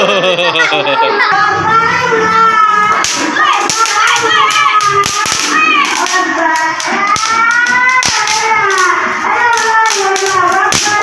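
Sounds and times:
firecrackers cracking and fizzing: 0:02.8 - 0:11.0.

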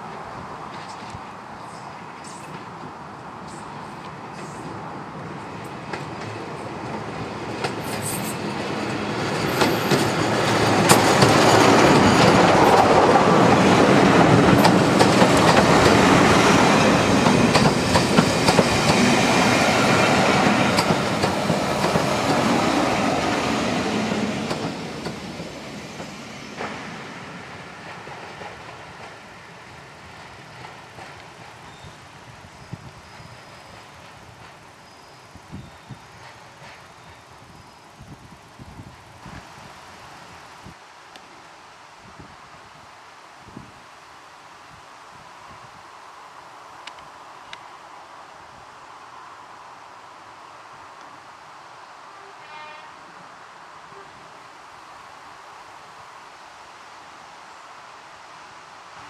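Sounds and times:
diesel locomotive passing: 0:00.0 - 0:38.5
coach wheel noise: 0:04.1 - 0:29.2.

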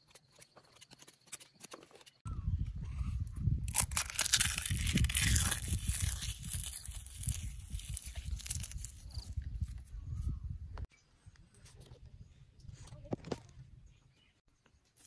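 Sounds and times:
eggshells crackling when crushed: 0:03.7 - 0:09.4.

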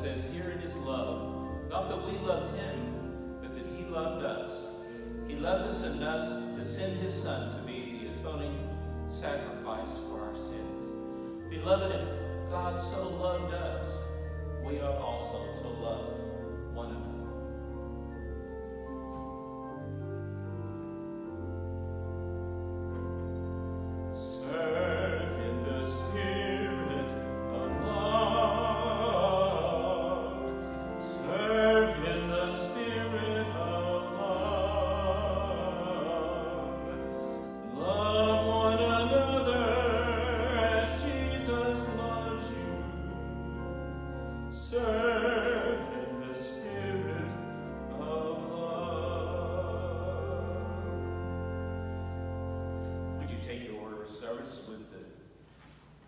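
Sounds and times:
keyboard sustained chords: 0:00.0 - 0:55.1
person singing with vibrato: 0:24.2 - 0:43.2, 0:44.5 - 0:51.6.

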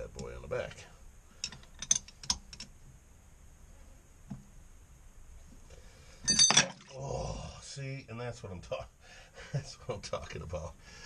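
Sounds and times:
metal clatter: 0:06.3 - 0:06.9.

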